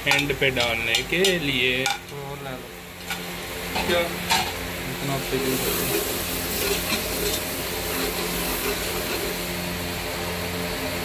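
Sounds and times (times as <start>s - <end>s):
masala sizzling in a pot: 0.0s - 11.0s
steady low hum: 0.0s - 11.0s
metal ladle scraping a pot: 5.6s - 9.5s.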